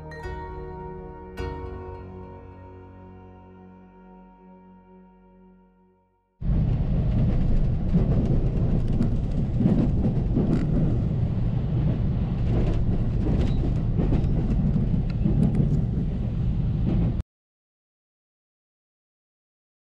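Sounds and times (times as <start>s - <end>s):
train rumbling: 6.4s - 17.2s.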